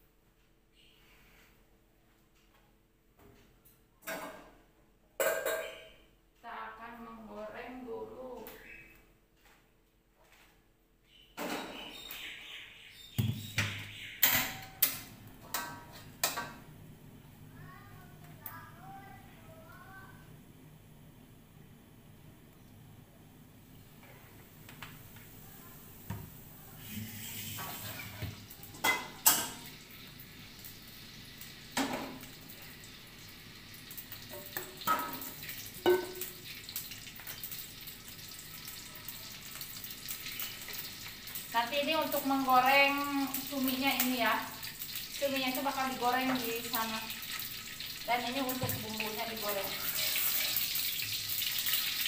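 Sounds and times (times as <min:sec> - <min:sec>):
metal cookware clanking: 0:05.2 - 0:05.9, 0:14.2 - 0:16.6, 0:27.2 - 0:29.7, 0:34.3 - 0:36.4
oil pouring into a wok: 0:49.9 - 0:52.0.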